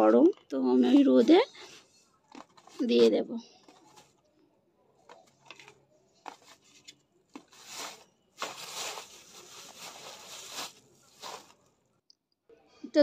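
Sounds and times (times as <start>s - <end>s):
plastic bag crinkling: 7.3s - 11.7s.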